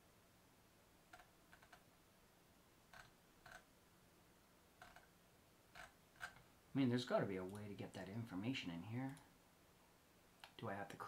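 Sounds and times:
computer clicks: 2.9s - 3.7s, 4.8s - 5.1s.

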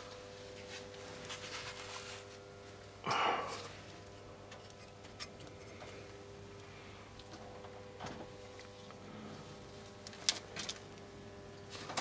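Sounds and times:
faint steady hum: 0.0s - 12.0s
person breathing or sighing: 3.1s - 3.7s.

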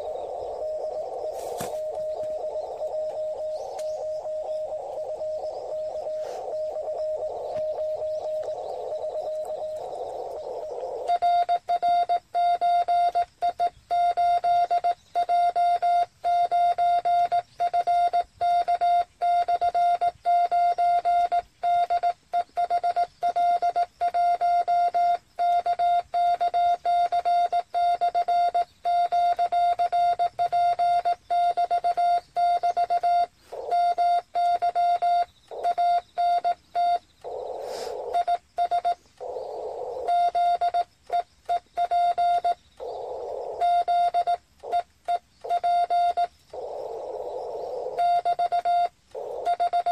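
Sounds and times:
radio receiver hiss: 0.0s - 11.1s, 37.2s - 38.2s
morse code beep tone: 0.0s - 49.9s.

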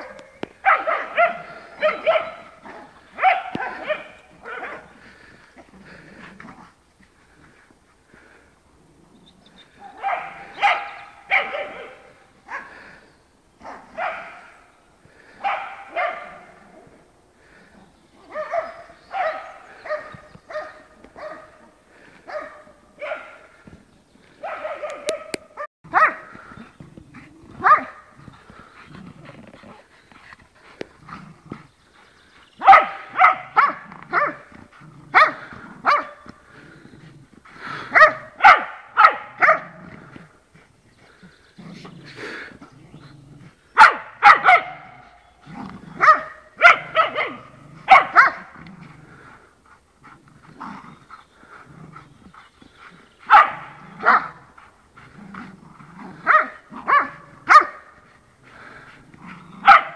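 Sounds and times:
dog barking: 0.0s - 4.9s, 9.8s - 12.8s, 13.6s - 14.6s, 15.4s - 16.6s, 18.2s - 21.7s, 22.3s - 23.5s, 24.4s - 26.4s, 27.6s - 28.0s, 32.6s - 34.5s, 35.1s - 36.3s, 37.9s - 39.8s, 43.8s - 45.2s, 46.0s - 48.6s, 53.3s - 54.4s, 56.2s - 57.9s, 59.6s - 59.9s.

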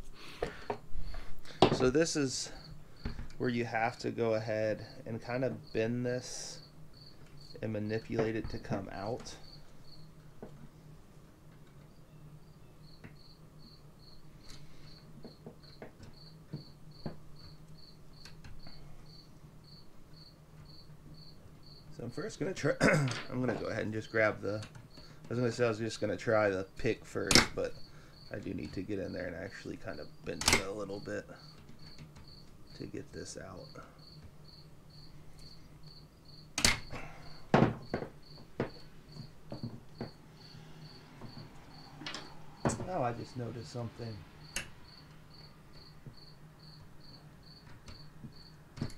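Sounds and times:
low steady hum: 0.0s - 48.9s
hand tools knocking on wood and metal: 37.5s - 40.2s.

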